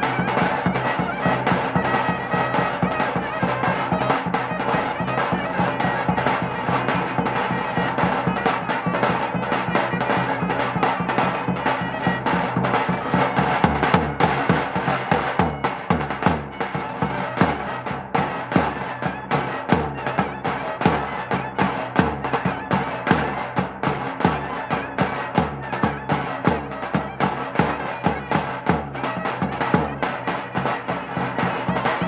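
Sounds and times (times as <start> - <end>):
clarinet melody: 0.0 - 23.6
drum beats: 0.0 - 32.0.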